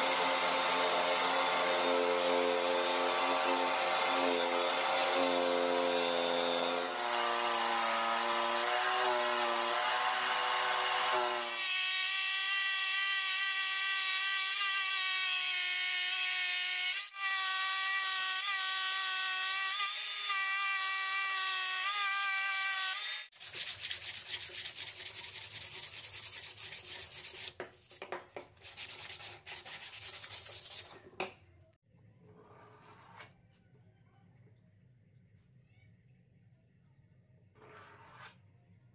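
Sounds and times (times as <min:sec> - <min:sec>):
jigsaw cutting plywood: 0:00.0 - 0:11.8.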